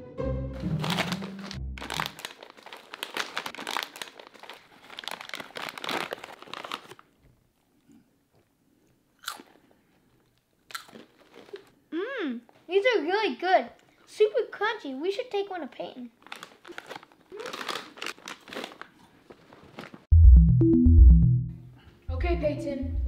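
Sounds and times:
plastic snack bag crinkling: 0.6 - 7.2, 9.4 - 11.7, 16.2 - 20.1
crunchy crackers being chewed: 0.8 - 11.8, 16.2 - 20.0.

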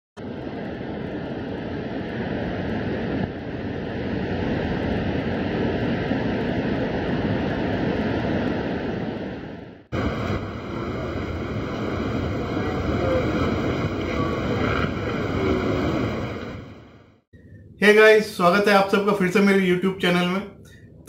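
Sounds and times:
waves breaking on rock: 9.9 - 16.9.

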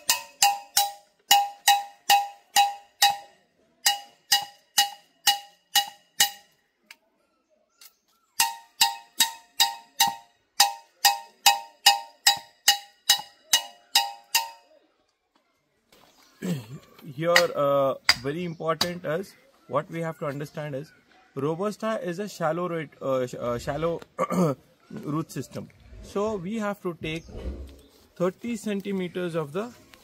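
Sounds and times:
metal tools clanging on metal: 0.0 - 6.6, 8.4 - 14.7.

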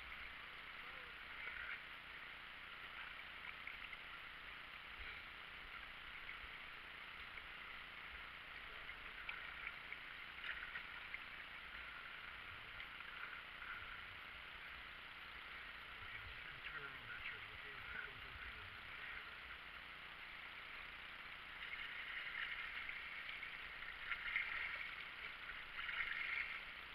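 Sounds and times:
kayak paddle dipping and dripping: 0.0 - 26.9
water trickling along hull: 0.0 - 26.9
small splashes: 21.4 - 26.9.

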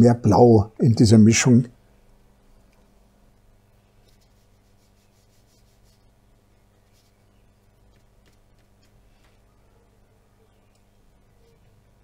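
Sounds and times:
low steady hum: 0.0 - 12.0
brush scratching on paper: 4.0 - 6.2, 6.8 - 9.5.

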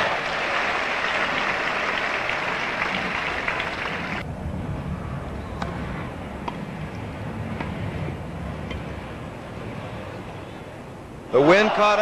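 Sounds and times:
crowd applauding: 0.0 - 4.2.

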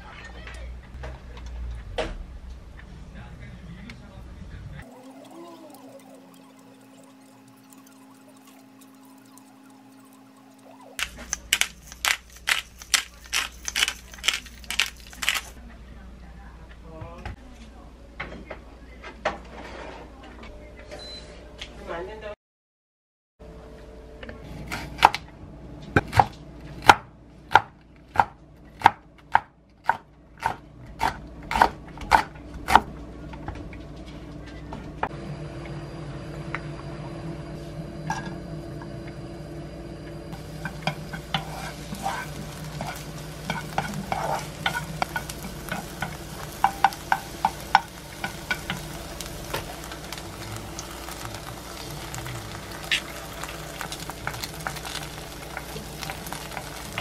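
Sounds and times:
onion sizzling in oil: 4.9 - 15.6, 40.4 - 57.0
egg cracking: 5.0 - 15.6, 40.4 - 57.0
utensil tapping pan: 40.4 - 49.6.

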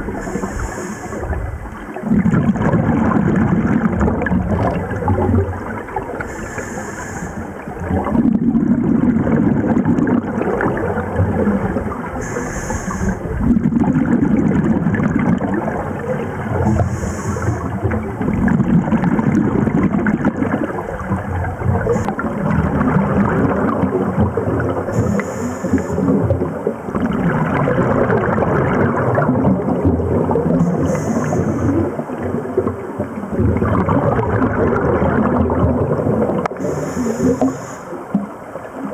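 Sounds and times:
gurgling exhaled bubbles: 0.0 - 38.9
regulator inhalation hiss: 0.2 - 1.3, 6.3 - 7.5, 12.2 - 13.2, 16.7 - 17.7, 24.9 - 26.1, 30.7 - 31.8, 36.6 - 38.0.

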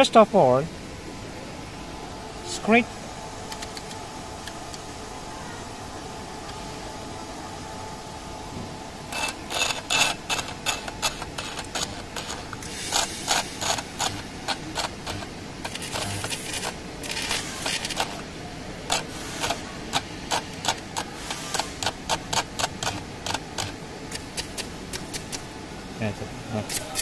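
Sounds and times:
steady low hum: 0.0 - 27.0
sharp crackling sparks: 9.1 - 18.3, 18.9 - 25.4.

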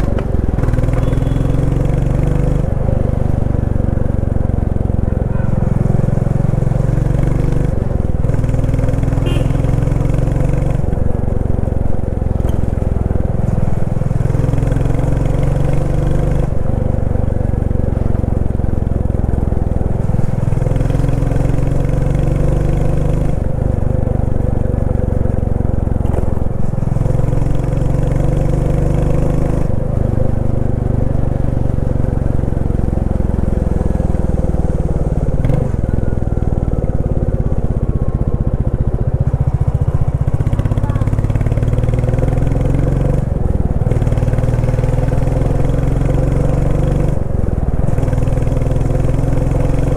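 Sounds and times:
motorcycle engine thumping: 25.8 - 26.8.

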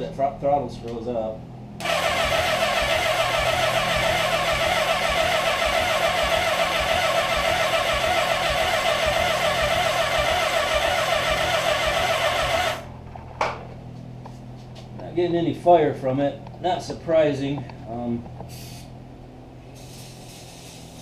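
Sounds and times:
electric starter cranking engine: 1.8 - 12.9.

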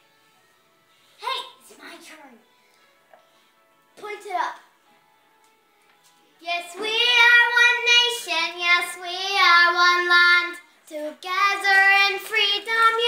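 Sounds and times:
girl singing unaccompanied: 6.3 - 13.0.

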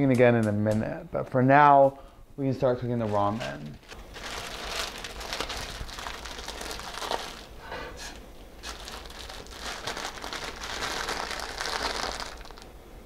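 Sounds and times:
plastic wrapper crinkling: 3.0 - 12.8.

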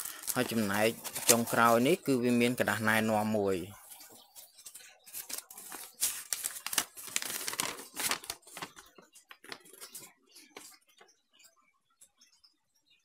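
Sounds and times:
paper crinkling and rustling: 0.0 - 2.0, 3.8 - 10.8.

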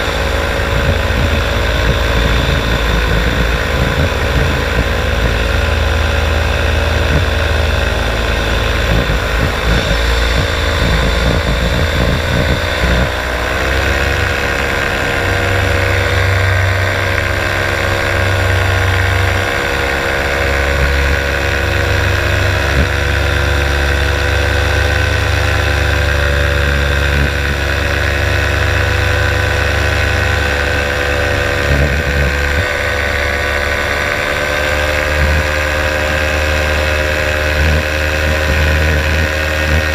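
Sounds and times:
wind rumbling on microphone: 0.0 - 23.6
paramotor engine and propeller: 0.0 - 39.9.

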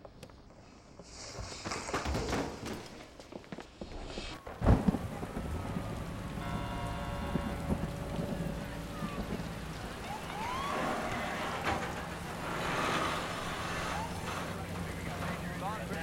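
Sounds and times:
heavy rain falling: 4.4 - 16.0
low rumble: 4.4 - 16.0.

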